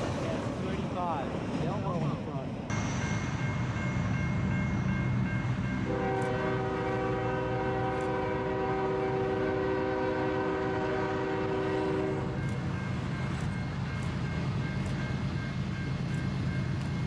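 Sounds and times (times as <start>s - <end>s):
train rumbling: 0.0s - 17.0s
locomotive air horn chord: 5.8s - 12.4s.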